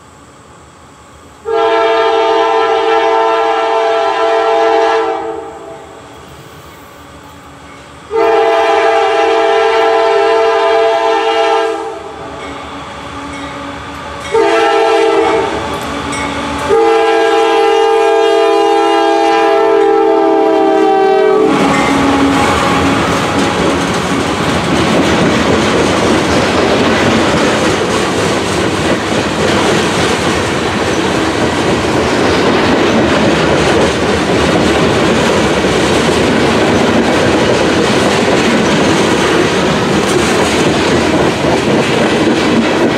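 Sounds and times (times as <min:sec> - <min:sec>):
train wheels rumbling on rails: 0:00.0 - 0:42.9
locomotive air horn blasts: 0:01.4 - 0:06.0, 0:08.1 - 0:12.2, 0:14.3 - 0:25.0
clickety-clack over rail joints: 0:15.3 - 0:16.8, 0:21.6 - 0:42.9.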